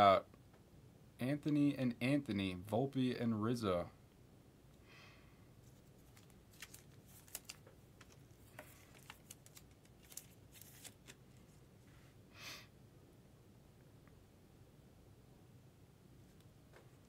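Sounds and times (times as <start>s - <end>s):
trading cards being handled: 5.6s - 11.6s.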